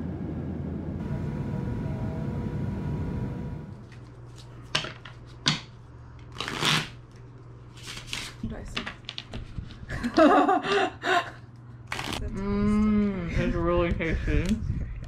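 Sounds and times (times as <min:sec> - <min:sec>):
airliner cabin rumble: 0:00.0 - 0:03.9.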